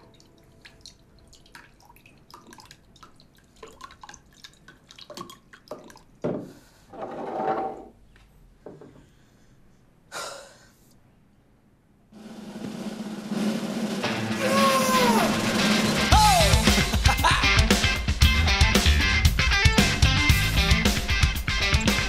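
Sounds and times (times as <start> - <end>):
dripping: 0.0 - 6.2
loud noisy sound: 13.7 - 17.4.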